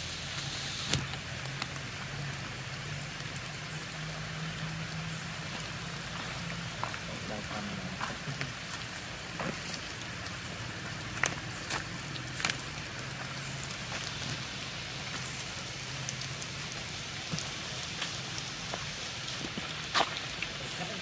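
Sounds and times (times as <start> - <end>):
rain falling on wet ground: 0.0 - 21.0
raindrop taps: 4.9 - 21.0.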